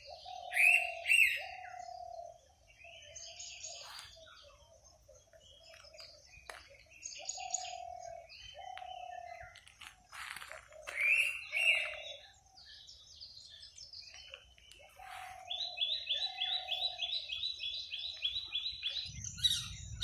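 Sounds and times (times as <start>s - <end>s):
high bird chirps: 10.7s - 12.2s, 13.5s - 20.0s
low whistled bird notes: 14.9s - 20.0s
low rumble: 19.0s - 20.0s.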